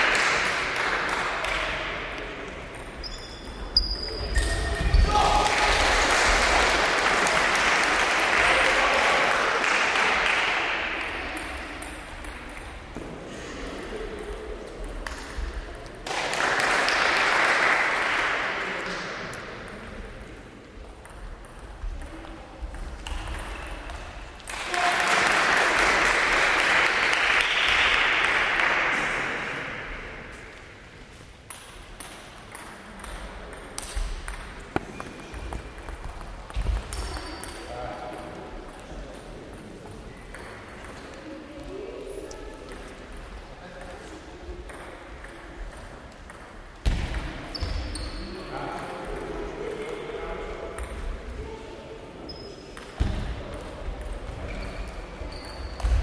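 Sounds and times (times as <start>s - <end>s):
spectators applauding: 0.0s - 1.7s, 5.1s - 10.9s, 16.0s - 18.8s, 24.5s - 29.4s
table tennis ball hitting paddles: 11.3s - 13.3s, 31.5s - 38.9s, 44.6s - 47.8s.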